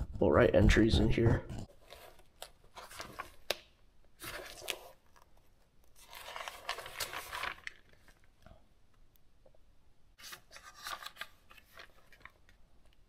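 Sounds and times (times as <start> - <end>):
paper pages turning: 1.5 - 8.5, 10.2 - 13.0
paper rustling: 1.5 - 8.5, 10.2 - 13.0.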